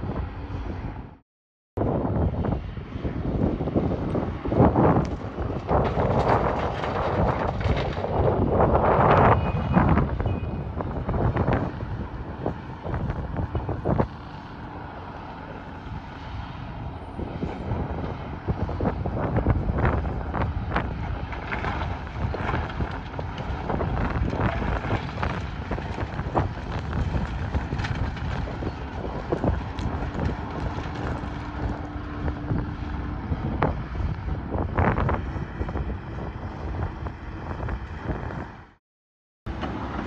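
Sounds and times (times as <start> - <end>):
wind buffeting microphone: 0.0 - 1.2, 1.8 - 38.8
excavator diesel rumble: 2.0 - 38.8, 39.5 - 40.0
gravel and steel bucket clatter: 3.9 - 14.1, 17.4 - 34.0.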